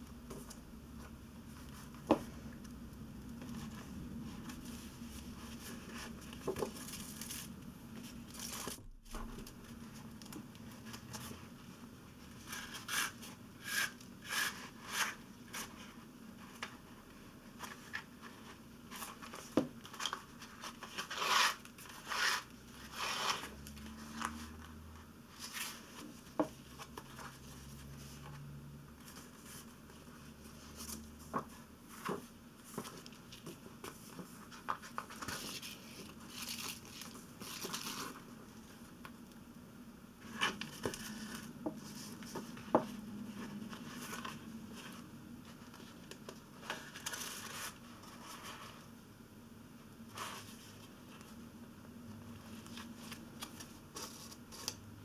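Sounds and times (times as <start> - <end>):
paper rustling: 29.0 - 38.8, 40.2 - 48.9, 52.4 - 54.8.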